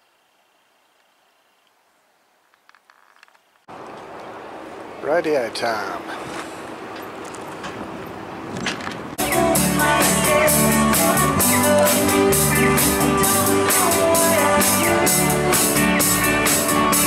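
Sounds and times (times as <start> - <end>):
woman singing: 9.2 - 15.8
drum kit beat: 9.2 - 17.0
electric guitars: 9.2 - 17.0.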